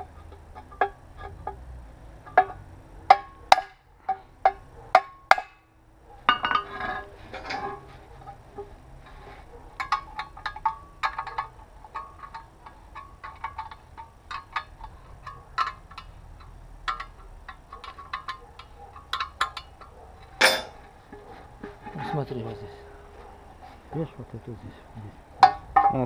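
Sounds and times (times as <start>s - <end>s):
steel pieces clinking together: 6.3s - 9.2s, 9.8s - 20.9s.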